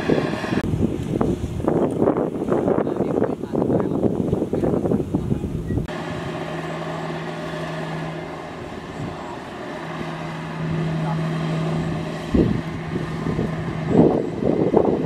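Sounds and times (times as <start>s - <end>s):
diesel engine humming: 0.0s - 0.8s, 5.4s - 15.0s.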